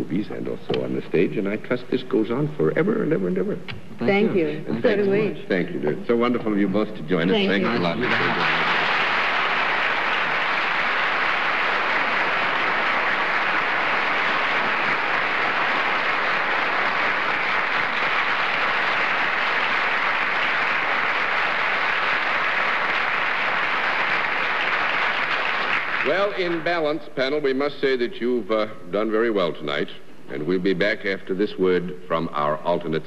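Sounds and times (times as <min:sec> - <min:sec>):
audience applauding: 0:07.5 - 0:26.9.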